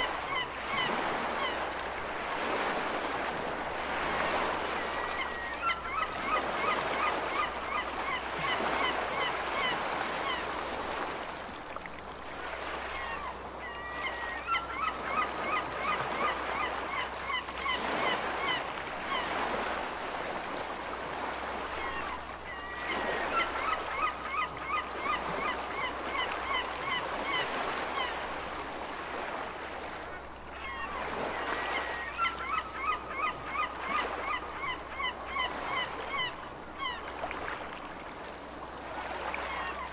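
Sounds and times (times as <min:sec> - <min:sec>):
gulls calling: 0:04.1 - 0:10.5, 0:12.8 - 0:19.4, 0:30.6 - 0:37.2.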